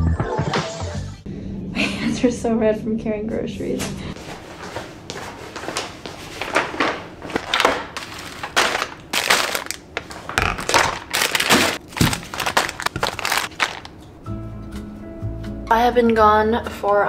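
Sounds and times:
packaging and paper bags crinkling: 5.6 - 14.0.

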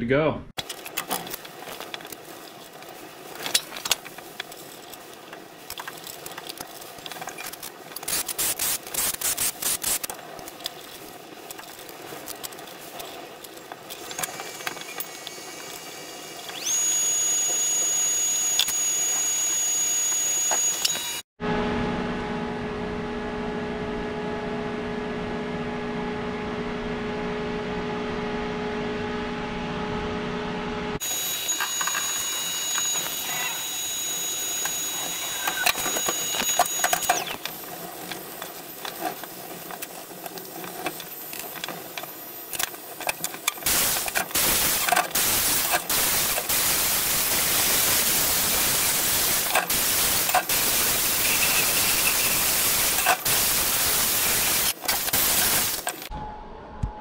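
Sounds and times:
steady hum: 7.7 - 57.0
angle grinder on steel: 31.0 - 37.5, 43.7 - 56.0.

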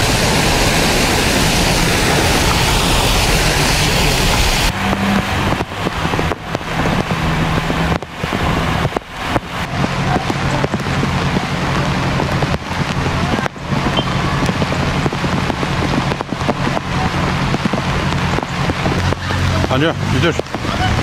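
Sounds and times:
heavy rain and floodwater hiss: 0.0 - 21.0
low steady hum: 9.1 - 18.9.

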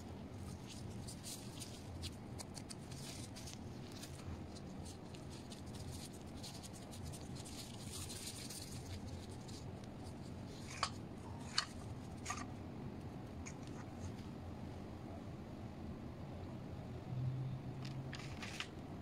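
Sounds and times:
low background hum: 0.0 - 19.0.

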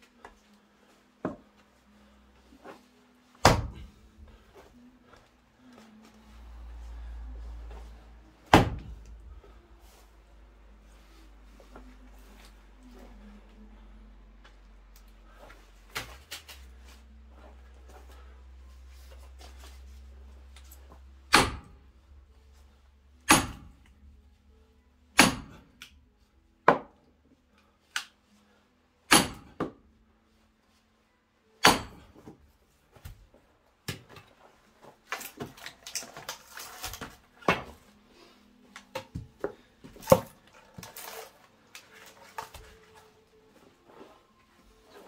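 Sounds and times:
axe striking wood: 3.4 - 3.9, 8.4 - 9.1, 21.3 - 21.8, 23.2 - 23.9, 25.2 - 25.9, 29.1 - 29.8, 31.6 - 32.4.

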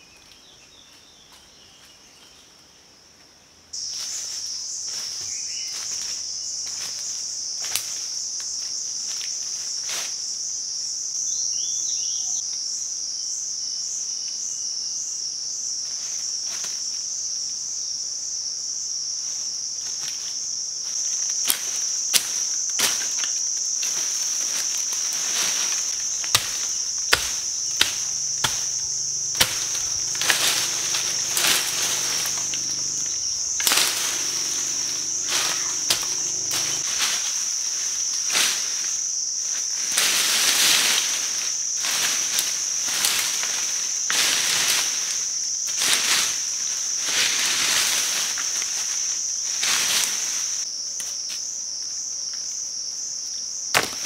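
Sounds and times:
insects droning: 0.0 - 54.0
brush rustling: 20.9 - 37.6
machete chopping brush: 23.9 - 37.2, 53.7 - 54.0.

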